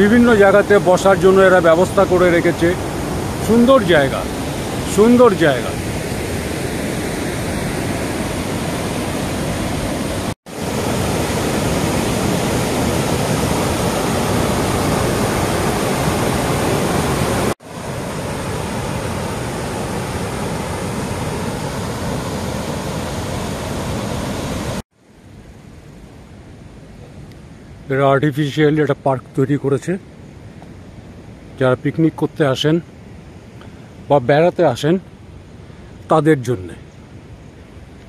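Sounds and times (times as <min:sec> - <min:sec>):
waterfall and rapids rushing: 0:00.0 - 0:25.5.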